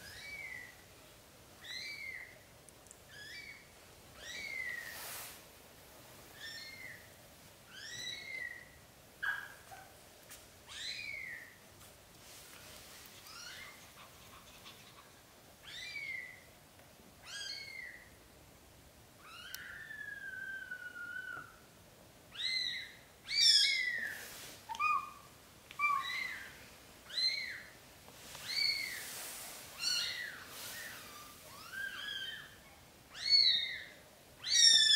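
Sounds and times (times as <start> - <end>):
kittens squeaking: 0.0 - 0.8, 1.6 - 2.4, 3.1 - 3.6, 4.2 - 5.0, 6.4 - 7.1, 7.7 - 9.5, 10.7 - 11.6, 13.2 - 16.5, 17.2 - 18.1, 19.3 - 21.6, 22.4 - 27.8, 28.4 - 29.1, 29.8 - 34.9.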